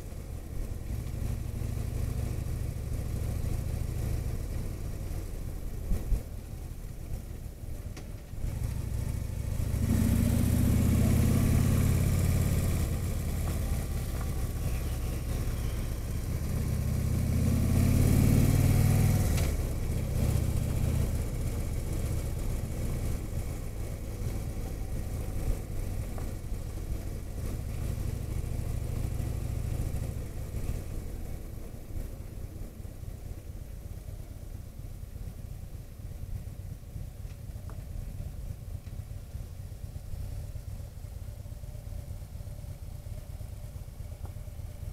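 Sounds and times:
motorcycle engine revving: 8.4 - 31.0.

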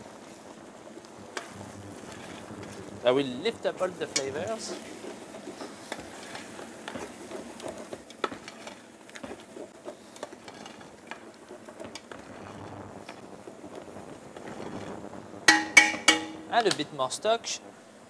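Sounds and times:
liquid simmering: 0.0 - 16.8
spoon scraping and tapping pot: 15.5 - 16.7.

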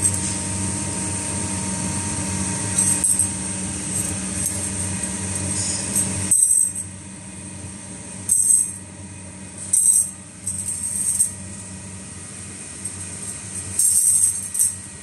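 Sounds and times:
machine hum with high whine: 0.0 - 15.0
metal wire rings clinking: 2.7 - 3.3, 3.9 - 6.9, 8.3 - 8.8, 9.6 - 11.7, 12.8 - 14.9.

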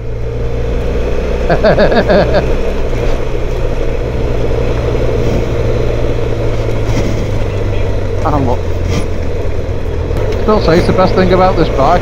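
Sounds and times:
motorcycle engine running: 0.0 - 12.0
road and wind noise: 0.0 - 12.0
person's voice: 10.4 - 12.0.

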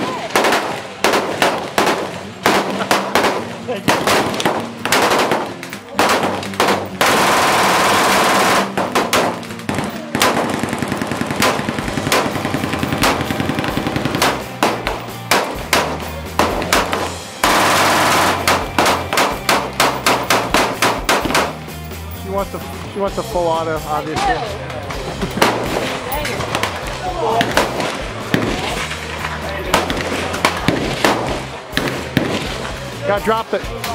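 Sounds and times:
rifle single shots: 0.3 - 21.6
machine gun bursts: 0.4 - 14.4, 16.7 - 21.5.

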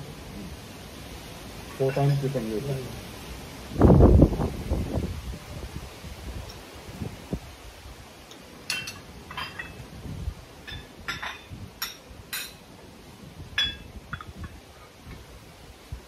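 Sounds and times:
cups and tableware clinking: 8.7 - 9.8, 10.6 - 12.6, 13.6 - 14.6.

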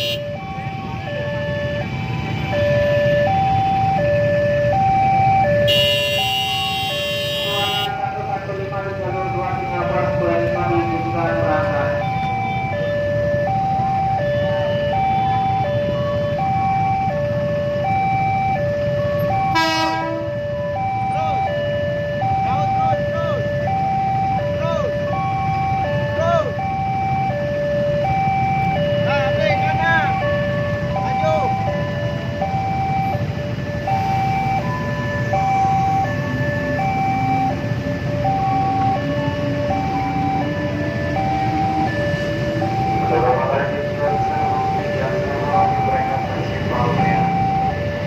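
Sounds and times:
two-tone siren: 0.0 - 48.0
horn blast: 5.7 - 8.0, 19.5 - 20.3.

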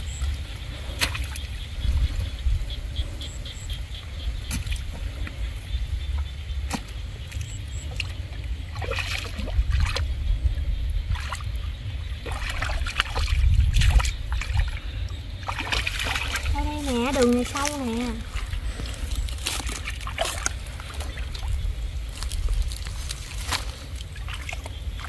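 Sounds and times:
steady low rumble: 0.0 - 25.0
hands splashing in muddy water: 6.6 - 10.2, 11.1 - 25.0
water trickling: 7.4 - 25.0.

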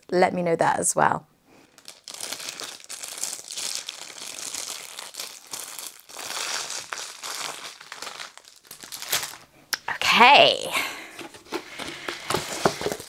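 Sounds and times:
plastic bag crinkling: 1.6 - 9.5, 11.2 - 13.0.

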